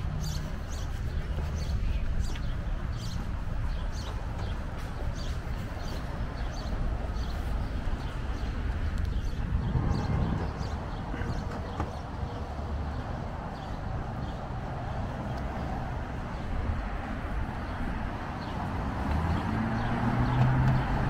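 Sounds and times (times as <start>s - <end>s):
footsteps on pavement: 0.0s - 21.0s.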